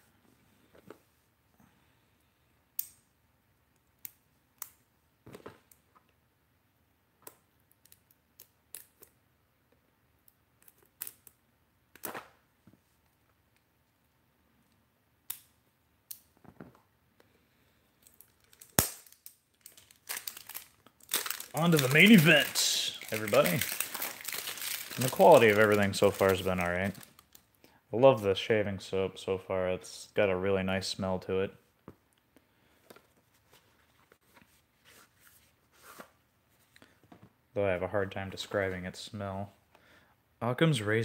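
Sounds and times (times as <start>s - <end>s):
small scissors snipping plastic wrap: 18.2s - 27.4s.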